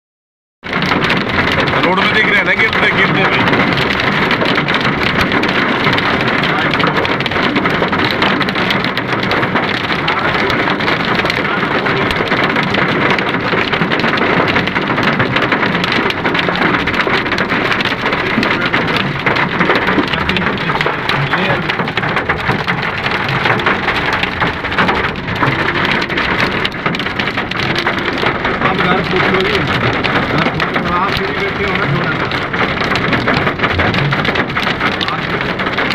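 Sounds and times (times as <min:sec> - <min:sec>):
hail and heavy rain pelting road: 0:00.6 - 0:35.9.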